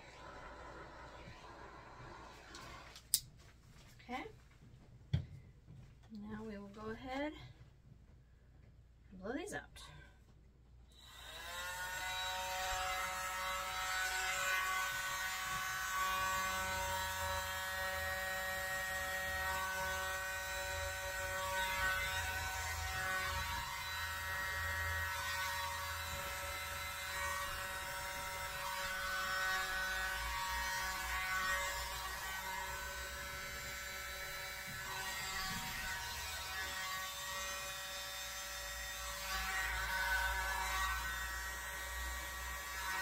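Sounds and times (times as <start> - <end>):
small electric blower whining: 10.9 - 43.0.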